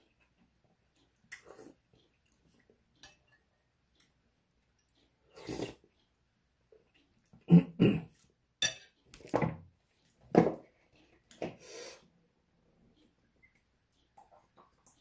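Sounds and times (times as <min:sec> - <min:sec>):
man slurping and smacking: 0:05.3 - 0:06.0.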